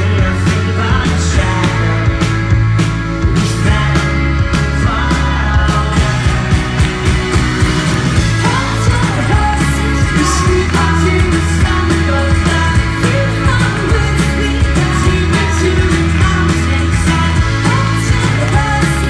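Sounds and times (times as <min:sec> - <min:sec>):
person singing: 0:00.0 - 0:07.5, 0:08.1 - 0:19.0
live folk-rock band playing: 0:00.0 - 0:19.0.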